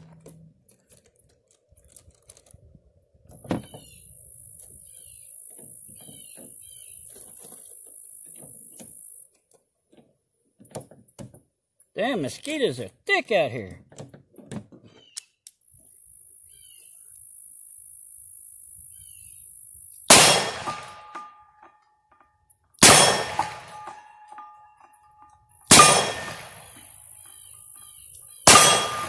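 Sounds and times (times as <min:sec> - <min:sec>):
high insect drone: 0:15.7 - 0:20.1
revolver shots: 0:20.1 - 0:21.2, 0:22.8 - 0:24.4, 0:25.7 - 0:26.9, 0:28.5 - 0:29.0.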